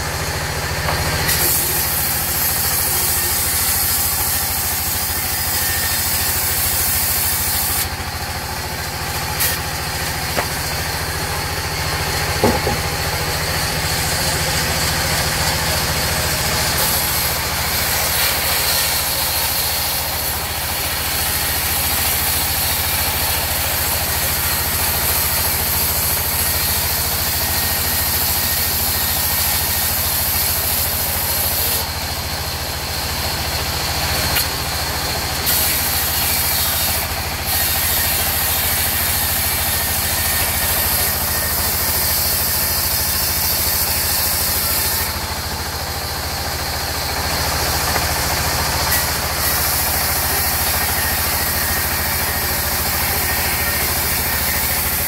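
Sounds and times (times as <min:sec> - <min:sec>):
band saw drive drone: 0:00.0 - 0:29.5, 0:34.2 - 0:55.0
saw blade hissing in wood: 0:01.2 - 0:08.0, 0:09.1 - 0:31.9.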